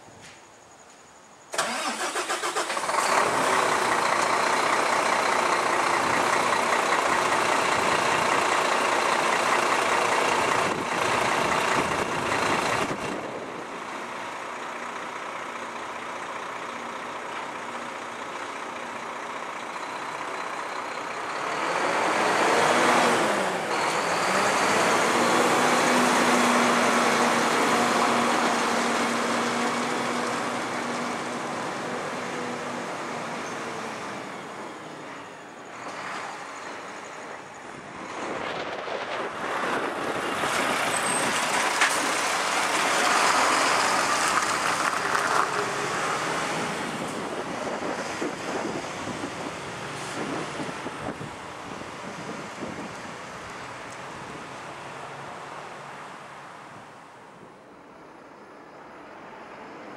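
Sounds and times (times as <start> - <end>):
diesel truck engine: 1.5 - 59.9.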